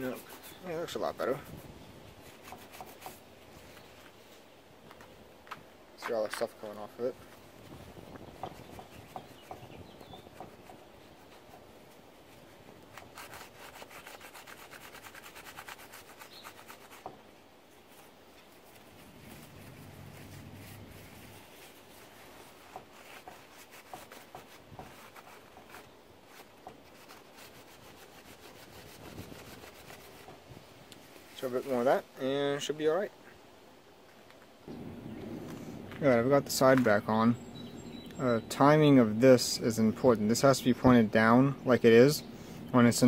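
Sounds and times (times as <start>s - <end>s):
paper towel scrubbing metal: 0.0s - 3.3s, 7.7s - 17.2s, 17.9s - 30.5s.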